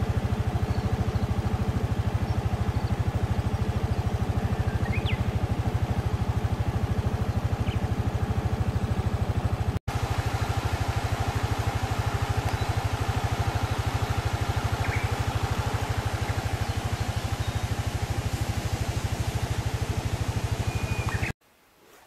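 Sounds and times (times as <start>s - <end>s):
engine idling: 0.0s - 21.4s.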